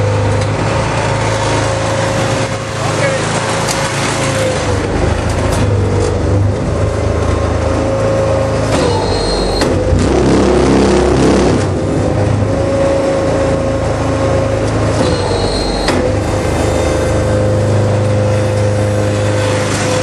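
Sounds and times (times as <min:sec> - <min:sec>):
machine engine drone: 0:00.0 - 0:20.0
brief high whine: 0:08.8 - 0:09.8, 0:15.0 - 0:16.1.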